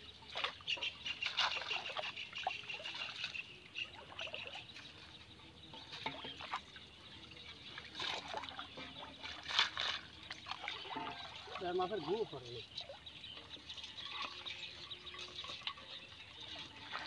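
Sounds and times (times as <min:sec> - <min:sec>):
water trickling and splashing: 0:00.0 - 0:17.0
sharp water splash: 0:00.4 - 0:03.4, 0:07.9 - 0:12.2.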